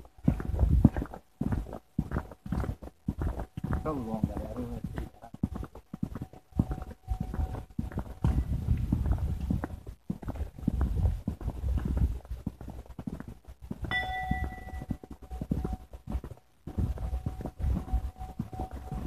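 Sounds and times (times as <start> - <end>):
footsteps: 0.0 - 19.0
bell-like ding: 13.9 - 15.0.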